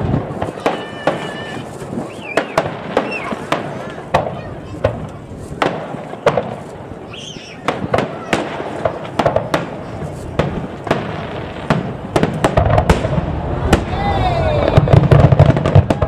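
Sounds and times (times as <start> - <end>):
fireworks bangs: 0.0 - 16.0
low rumble of fireworks: 0.0 - 16.0.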